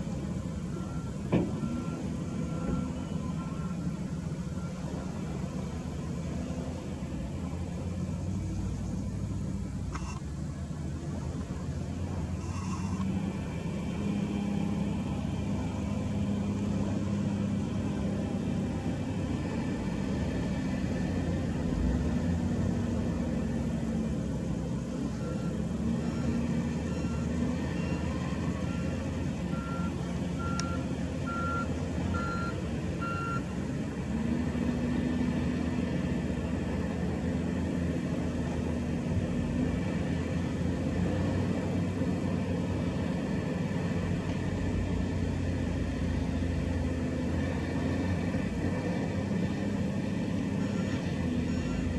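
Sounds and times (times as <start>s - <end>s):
wheel loader engine revving: 11.2s - 51.9s
reversing alarm beeps: 25.2s - 33.4s, 50.6s - 51.9s.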